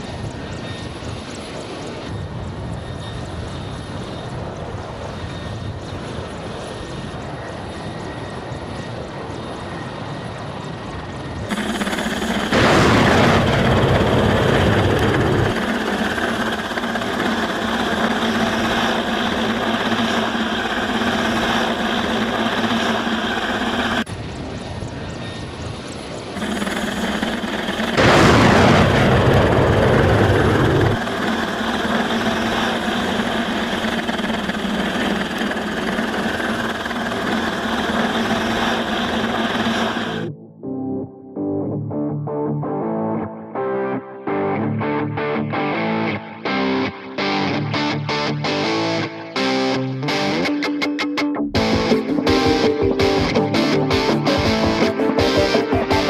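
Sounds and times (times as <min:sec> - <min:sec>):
helicopter rotor and turbine drone: 0:00.0 - 0:40.4, 0:44.0 - 0:56.0
missile launch rushing blast: 0:12.5 - 0:15.6, 0:27.8 - 0:31.6.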